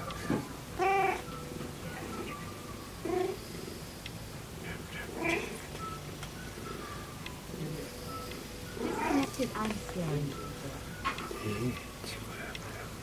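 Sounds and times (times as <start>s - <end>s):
cat meowing: 0.2s - 1.2s, 8.8s - 9.4s.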